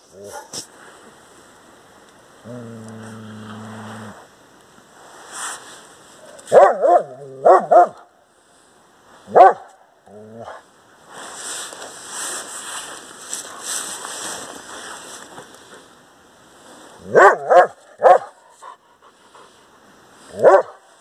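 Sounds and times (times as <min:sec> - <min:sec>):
large dog barking: 0:06.5 - 0:08.1, 0:09.3 - 0:10.6, 0:17.0 - 0:18.5, 0:20.3 - 0:20.9.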